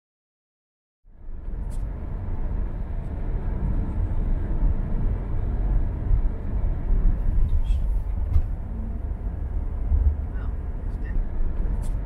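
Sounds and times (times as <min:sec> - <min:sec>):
tyres on a wet road: 0:01.1 - 0:12.0.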